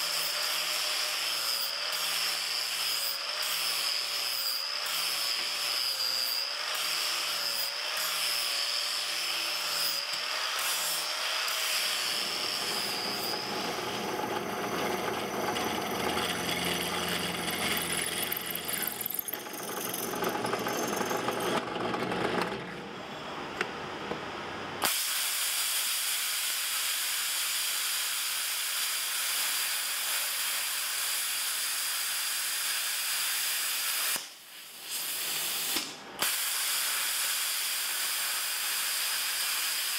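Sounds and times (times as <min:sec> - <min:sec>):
drill press boring steel: 0:00.0 - 0:22.7
angle grinder whine: 0:03.0 - 0:23.0
plasma cutter air hiss: 0:24.8 - 0:39.9.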